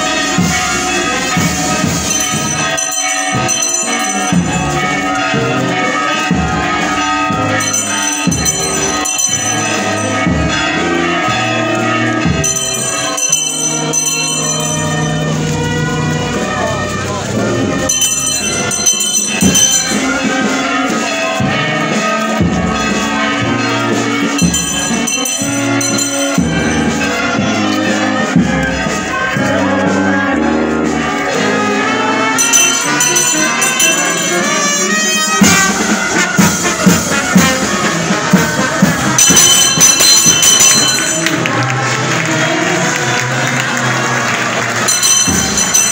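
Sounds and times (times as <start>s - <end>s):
brass band playing: 0.0s - 45.9s.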